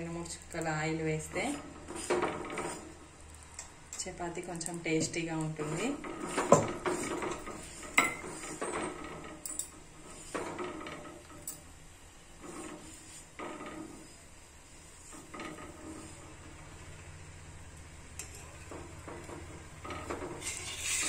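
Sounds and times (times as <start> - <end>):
spatula scraping flatbread on iron pan: 1.4 - 3.2, 5.0 - 11.4, 12.3 - 16.9, 18.2 - 21.0.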